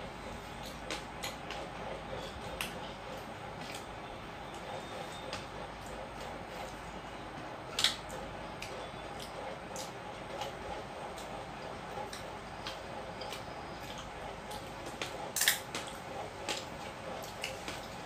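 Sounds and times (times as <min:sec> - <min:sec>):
steady background noise: 0:00.0 - 0:18.0
wet chewing and lip-smacking: 0:07.7 - 0:18.0.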